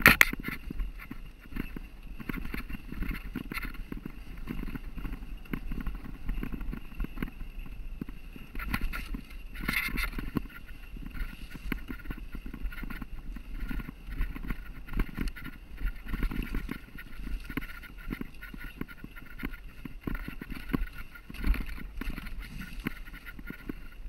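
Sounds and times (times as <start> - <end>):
bike rattling: 0.0 - 24.0
low rumble of tyre noise: 0.0 - 24.0.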